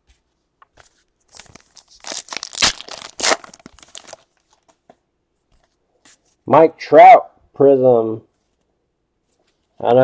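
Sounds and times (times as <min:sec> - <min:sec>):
foil wrapper tearing and crinkling: 0:01.3 - 0:04.4.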